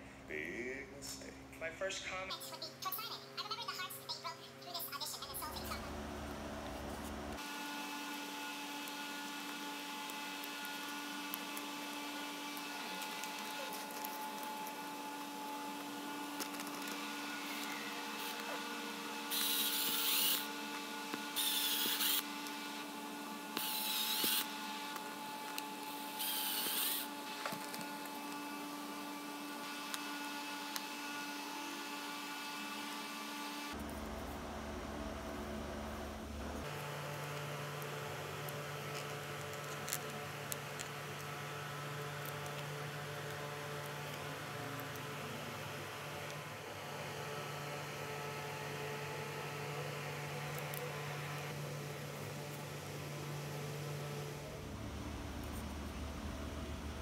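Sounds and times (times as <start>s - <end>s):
steady background hum: 0.0s - 57.0s
power drill boring into wood: 26.0s - 27.2s.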